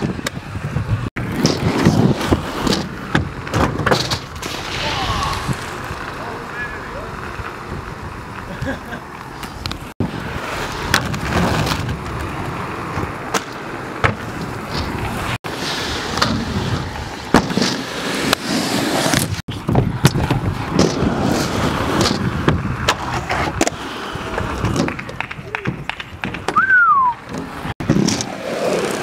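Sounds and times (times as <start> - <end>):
skateboard wheels rolling on concrete: 0.0 - 29.0
skateboard clacking on ground: 19.1 - 29.0.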